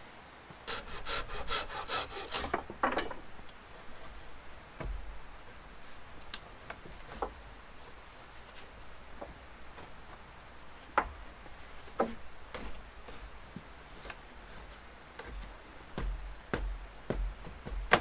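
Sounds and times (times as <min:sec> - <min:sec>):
wood rasping: 0:00.6 - 0:02.7
wooden poles knocking: 0:02.3 - 0:03.3, 0:04.8 - 0:05.2, 0:10.9 - 0:11.3, 0:11.9 - 0:13.2, 0:15.2 - 0:18.0.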